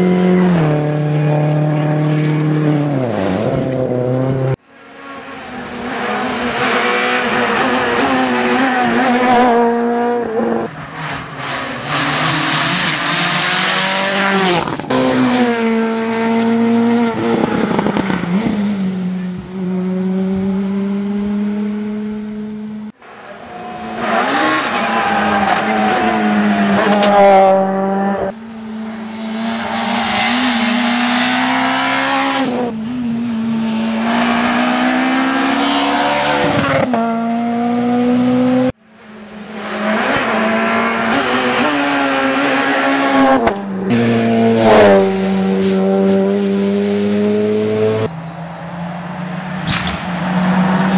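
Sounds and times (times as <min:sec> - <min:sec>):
rally car engines revving: 0:00.0 - 0:50.9.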